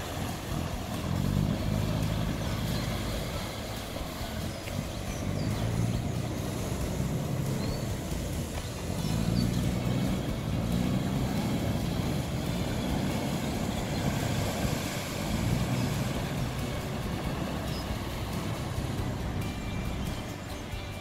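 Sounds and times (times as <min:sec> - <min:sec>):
boat diesel engine running: 0:00.0 - 0:21.0
propeller wash churning: 0:00.0 - 0:21.0.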